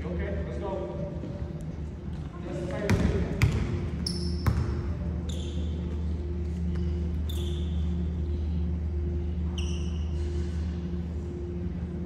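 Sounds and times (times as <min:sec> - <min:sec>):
steady low hum: 0:00.0 - 0:12.0
sneaker squeaks: 0:02.9 - 0:06.1, 0:06.7 - 0:08.1, 0:09.5 - 0:10.4.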